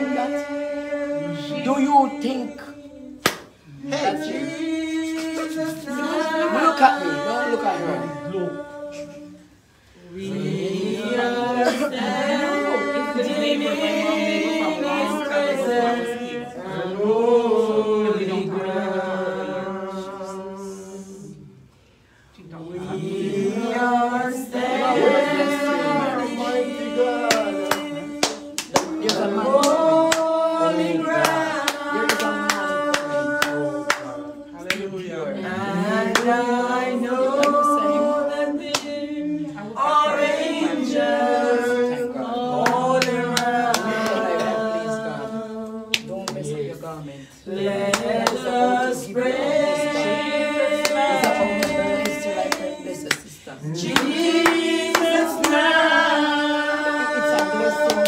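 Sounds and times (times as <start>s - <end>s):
people singing a worship song: 0.0s - 58.0s
hands clapping along: 3.2s - 3.6s, 27.2s - 34.9s, 42.6s - 44.7s, 45.9s - 46.5s, 47.8s - 48.6s, 50.7s - 58.0s.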